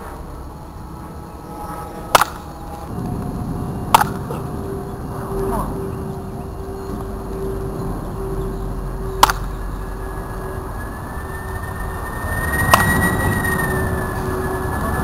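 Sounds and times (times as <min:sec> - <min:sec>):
engine-like hum: 0:00.0 - 0:15.0
high whine: 0:00.0 - 0:15.0
wooden bat hitting ball: 0:02.1 - 0:02.6, 0:03.9 - 0:04.3, 0:09.2 - 0:09.5.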